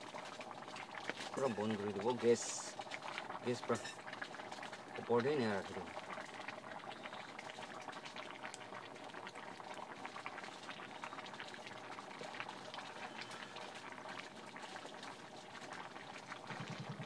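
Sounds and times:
pot boiling and bubbling: 0.0 - 17.0
wood fire crackling: 0.0 - 17.0.

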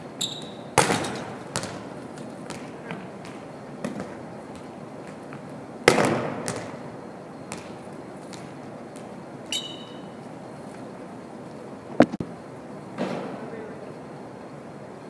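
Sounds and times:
sneaker squeak: 0.1 - 1.8, 8.4 - 10.4.

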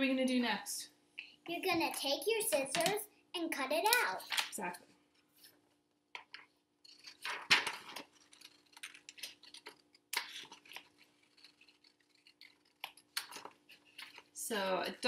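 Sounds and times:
paper rustling: 6.8 - 14.4
scissors snipping paper: 6.9 - 14.4.

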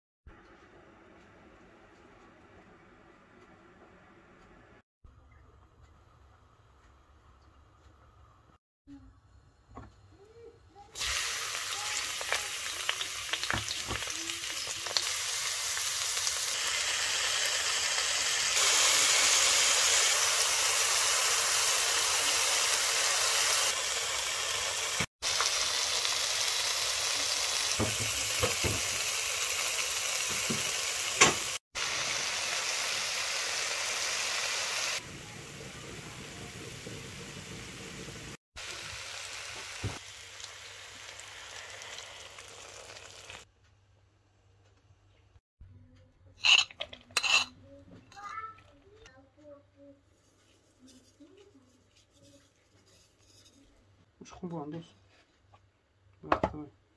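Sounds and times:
vegetables sizzling in oil: 11.0 - 43.5.

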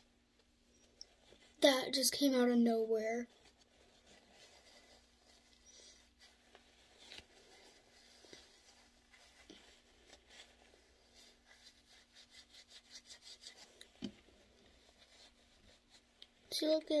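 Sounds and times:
tissue rubbing on lips: 3.2 - 16.9.

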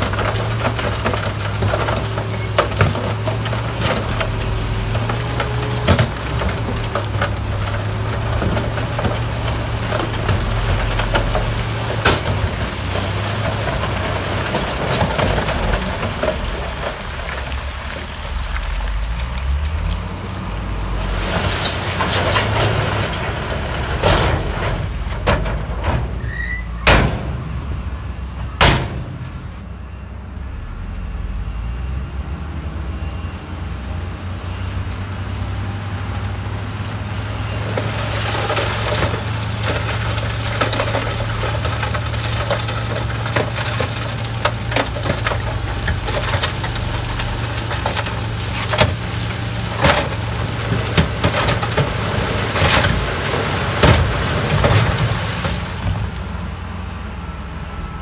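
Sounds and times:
rocks clattering: 0.0 - 20.1, 37.6 - 56.2
diesel engine running: 0.0 - 58.0.

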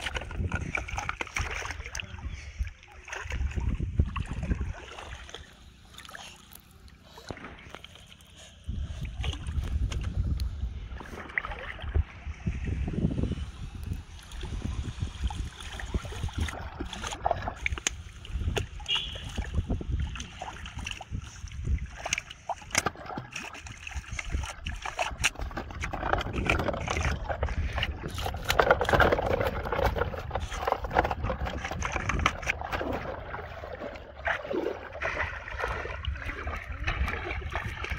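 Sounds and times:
river water splashing: 0.0 - 37.9
water pouring out of a bottle: 11.0 - 37.9
plastic bottles clicking and knocking: 24.3 - 32.8.

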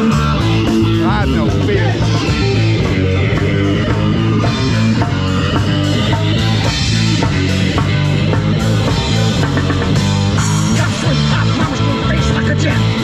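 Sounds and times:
drum kit: 0.0 - 13.0
electric guitar: 0.0 - 13.0.

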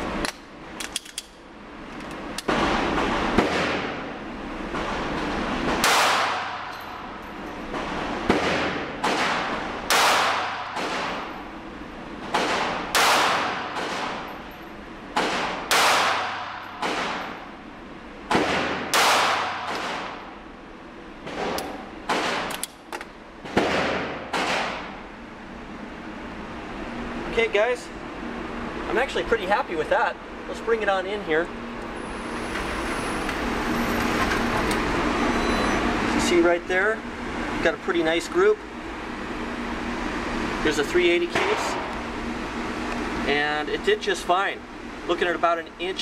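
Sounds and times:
pistol gunshots echoing indoors: 5.8 - 6.8, 8.3 - 11.3, 12.3 - 14.2, 15.2 - 17.4, 18.3 - 20.3, 21.3 - 22.8, 23.4 - 25.0.

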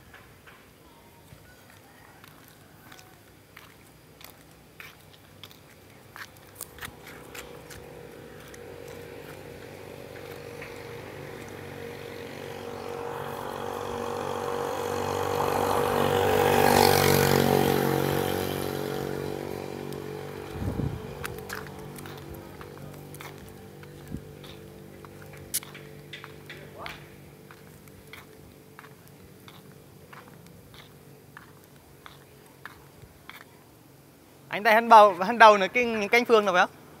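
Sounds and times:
vehicle driving past: 6.6 - 31.0.

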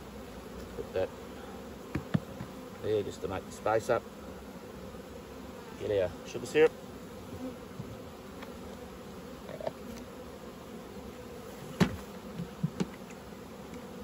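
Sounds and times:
honeybees humming: 0.0 - 14.0
plastic bucket lid knocks: 11.8 - 12.0.

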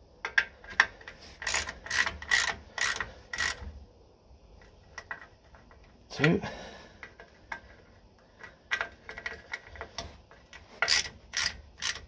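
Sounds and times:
ratchet wrench clicking: 1.4 - 3.6, 10.8 - 12.0.

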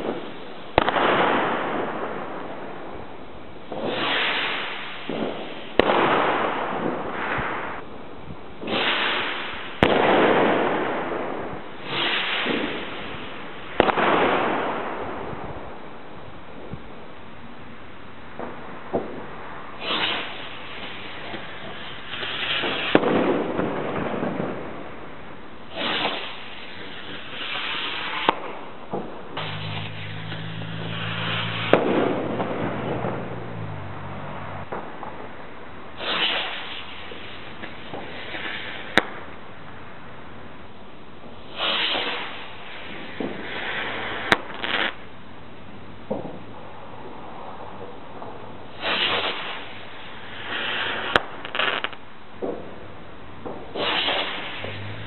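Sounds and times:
firework bangs: 0.0 - 7.9, 8.6 - 16.9, 18.2 - 40.3, 41.3 - 55.0
hissing crackling firework stars: 0.0 - 55.0
rushing noise: 29.4 - 34.7.

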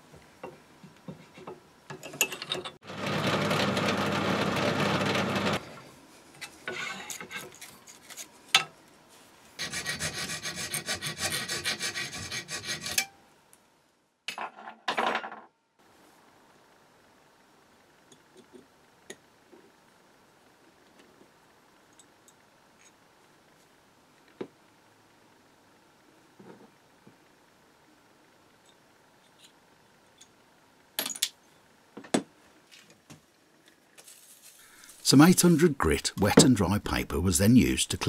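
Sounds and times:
scratchy rubbing strokes: 9.6 - 13.0.

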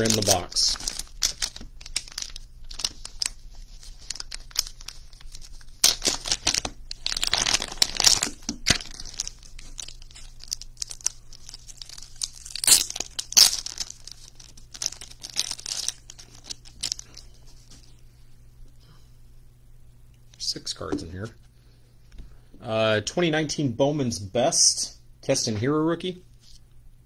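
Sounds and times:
plastic wrapping tearing and crinkling: 0.0 - 17.9.

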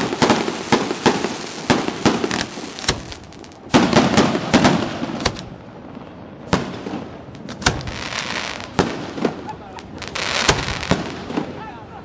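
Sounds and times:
fireworks bursting: 0.0 - 11.7.

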